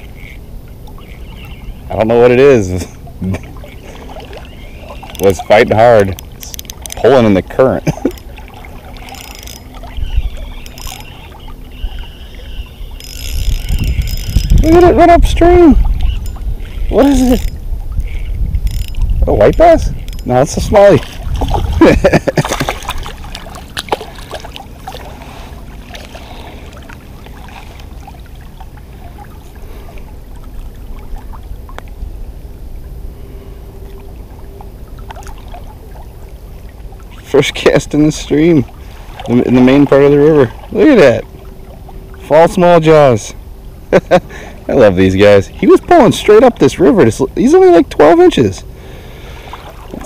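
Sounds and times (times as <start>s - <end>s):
low rumbling buffeting: 0.0s - 50.0s
river water flowing and lapping: 0.0s - 50.0s
small ticks: 3.4s - 7.1s, 7.9s - 14.6s, 16.0s - 20.4s.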